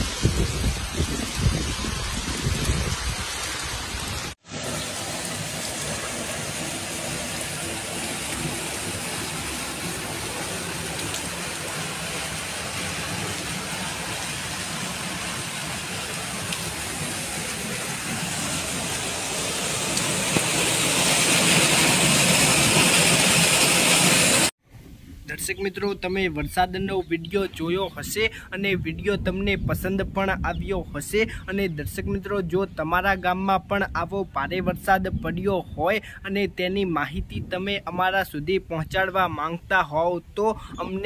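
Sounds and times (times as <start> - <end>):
heavy rain: 0.0 - 24.5
running floodwater: 0.0 - 24.6.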